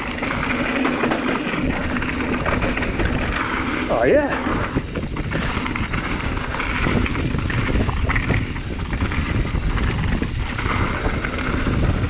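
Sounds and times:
bike knocks and rattles: 0.0 - 12.0
tyres rumbling on loose dirt: 0.0 - 12.0
wind buffeting microphone: 0.0 - 12.0.

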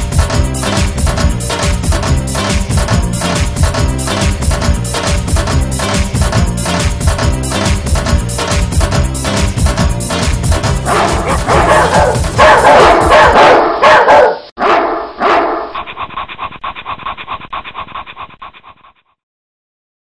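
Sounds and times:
electronic dance music: 0.0 - 13.9
dog barking sounds: 10.8 - 15.8.

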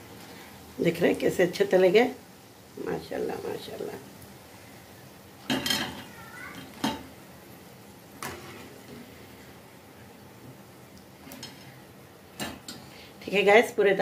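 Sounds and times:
wire skimmer clanking on metal pan: 5.5 - 7.1.

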